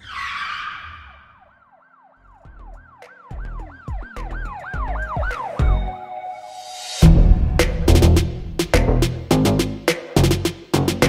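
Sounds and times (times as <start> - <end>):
siren wailing: 0.0 - 6.6
deep bass thumps: 7.0 - 9.8.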